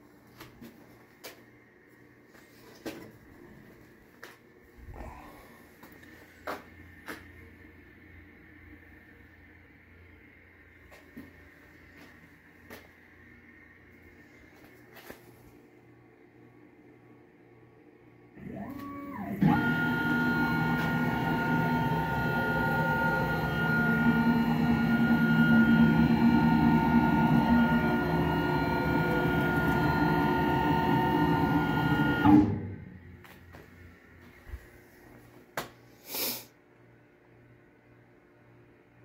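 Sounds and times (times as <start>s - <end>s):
mill spindle whine: 18.3s - 35.2s.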